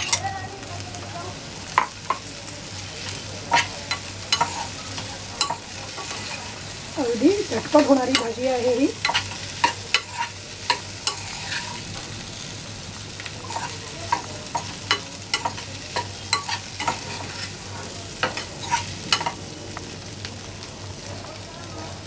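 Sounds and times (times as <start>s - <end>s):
oil sizzling: 0.0s - 22.0s
metal spoon scraping frying pan: 3.4s - 12.1s, 13.4s - 19.4s.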